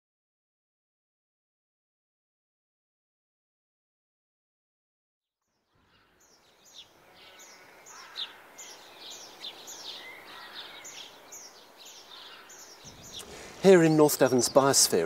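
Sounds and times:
birdsong with falling high notes: 0:05.5 - 0:15.0
outdoor background noise: 0:05.5 - 0:15.0.

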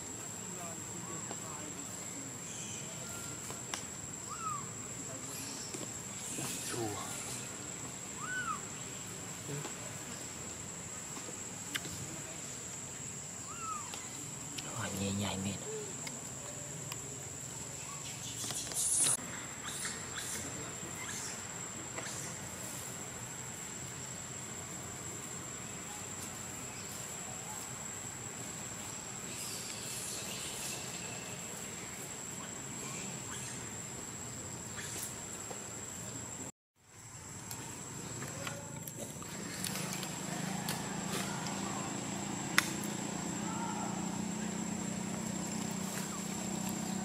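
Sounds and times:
outdoor hiss: 0:00.0 - 0:47.0
high-pitched insect drone: 0:00.1 - 0:09.6
sharp click: 0:42.6 - 0:42.9.

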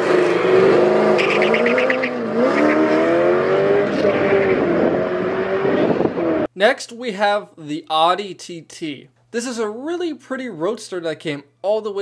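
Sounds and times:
car engines accelerating hard: 0:00.0 - 0:06.5.

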